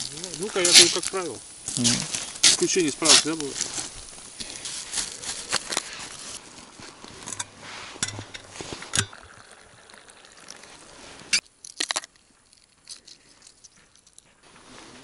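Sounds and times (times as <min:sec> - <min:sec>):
egg shell peeling crackles: 0:00.0 - 0:06.4, 0:11.4 - 0:14.3
plastic food bag rustling: 0:00.0 - 0:06.4
egg shell cracking: 0:11.3 - 0:14.2.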